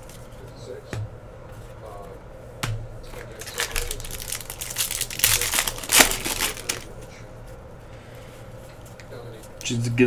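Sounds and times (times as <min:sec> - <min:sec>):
plastic wrapper crinkling: 0:03.1 - 0:06.9.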